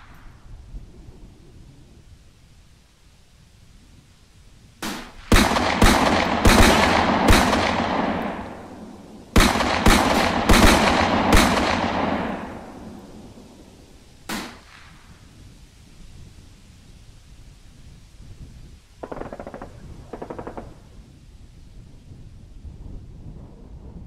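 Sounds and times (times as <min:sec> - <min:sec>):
echoing gunshots: 0:04.8 - 0:15.0, 0:19.0 - 0:20.8.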